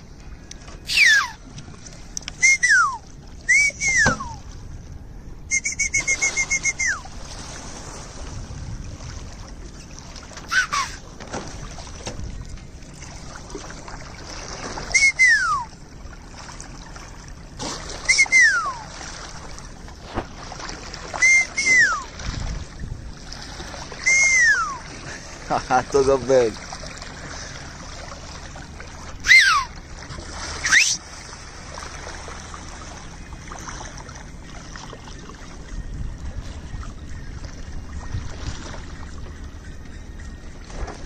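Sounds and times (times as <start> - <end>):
boat moving on water: 0.0 - 41.0
whistles sliding down: 2.4 - 4.4, 5.5 - 7.0, 21.2 - 22.1, 30.6 - 31.0.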